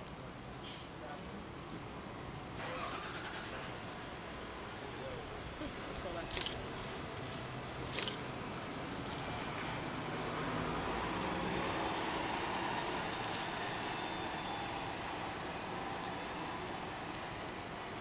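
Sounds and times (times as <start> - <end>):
bus driving past: 6.4 - 18.0.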